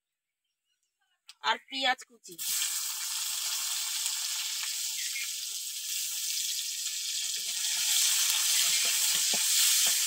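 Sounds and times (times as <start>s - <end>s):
onion sizzling in hot oil: 2.3s - 10.0s
spatula scraping pan: 7.4s - 10.0s.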